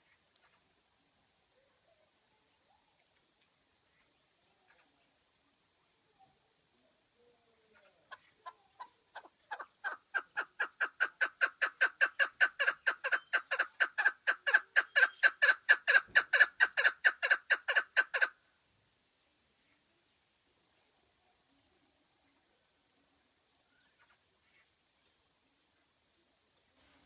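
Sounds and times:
partridge chuck calls: 0:07.7 - 0:18.4.

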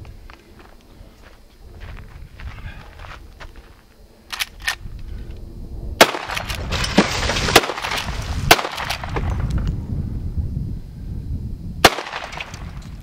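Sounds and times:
rifle gunshots: 0:06.0 - 0:09.3, 0:11.8 - 0:12.6.

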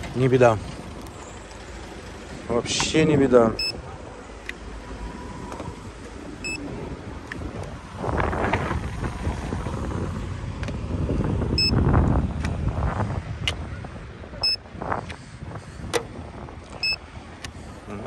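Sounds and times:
wind buffeting microphone: 0:00.0 - 0:18.0
short electronic beeps: 0:03.6 - 0:03.8, 0:16.8 - 0:17.0.

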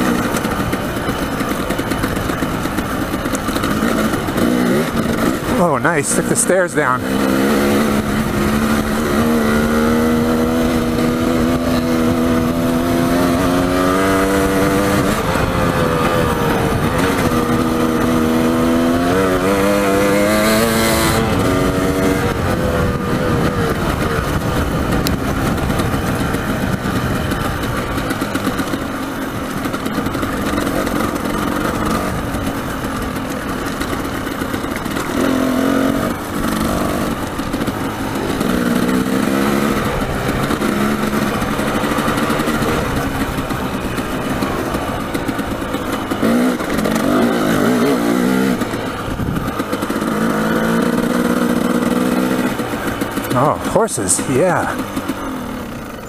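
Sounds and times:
dirt bike engine: 0:00.0 - 0:56.0
wind rushing over microphone: 0:20.1 - 0:28.4, 0:48.6 - 0:51.2.

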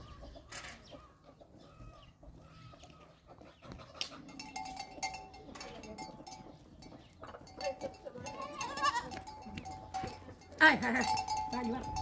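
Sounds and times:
sheep bleating: 0:08.2 - 0:09.2.

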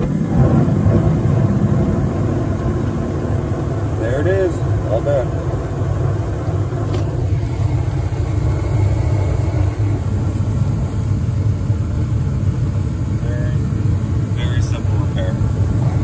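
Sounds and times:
furnace burner rumble: 0:00.0 - 0:16.0.

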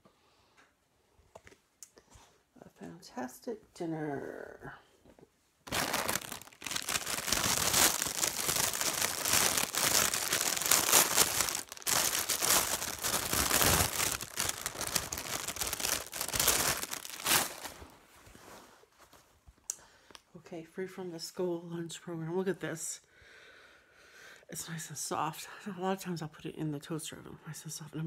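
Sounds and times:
plastic packaging crinkling: 0:05.7 - 0:18.0.

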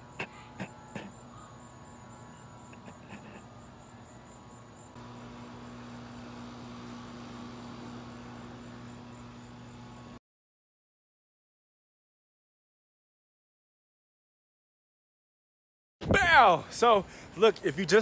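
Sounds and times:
steady low hum: 0:00.0 - 0:10.2.

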